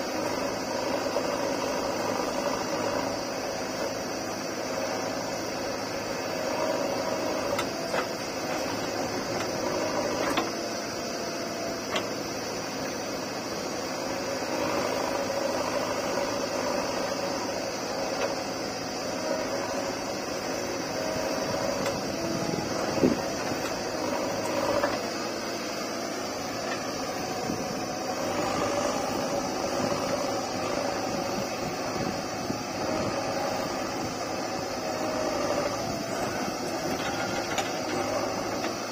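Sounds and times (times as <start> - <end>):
diesel engine running: 0.0 - 38.9
tractor engine running: 0.0 - 38.9.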